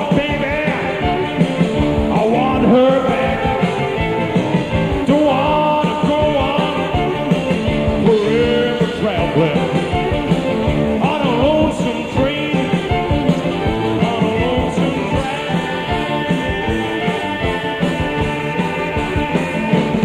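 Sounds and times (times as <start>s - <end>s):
blues rock band playing: 0.0s - 20.0s.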